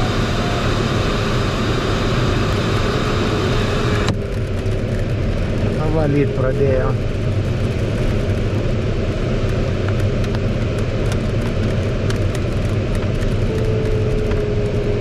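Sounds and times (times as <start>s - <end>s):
raindrops ticking on canopy: 9.4s - 14.9s.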